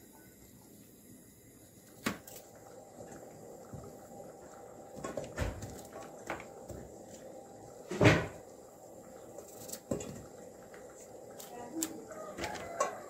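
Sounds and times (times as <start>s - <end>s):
louder clunk: 7.9s - 8.4s.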